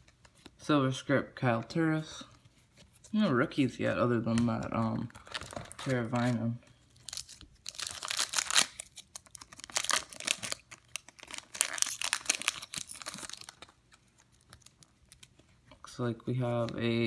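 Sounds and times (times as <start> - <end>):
wrapper ripping and crinkling: 5.2 - 15.3.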